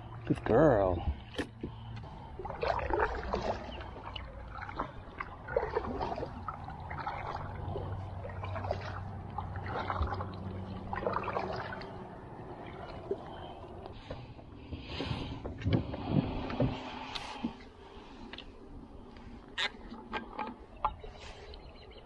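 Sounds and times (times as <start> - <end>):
kayak paddle splashing water: 1.3 - 14.2.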